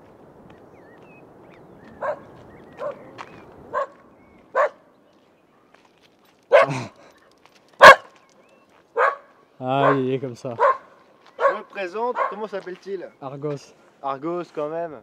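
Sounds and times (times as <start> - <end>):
dog barking: 2.0 - 3.1, 3.7 - 4.8, 6.5 - 6.9, 7.8 - 8.2, 9.0 - 12.5.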